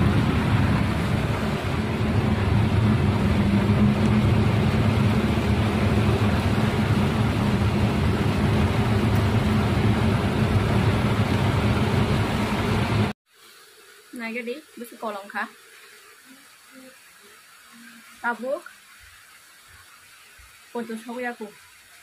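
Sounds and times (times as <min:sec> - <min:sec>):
engine and tyre hum: 0:00.0 - 0:13.2
rain hissing on wet road: 0:00.0 - 0:22.0.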